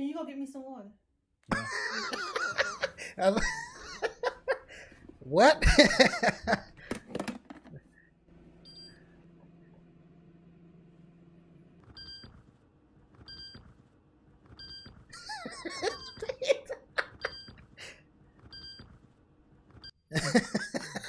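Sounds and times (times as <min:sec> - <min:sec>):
people laughing: 0:01.5 - 0:06.9, 0:15.1 - 0:18.0, 0:20.1 - 0:21.0.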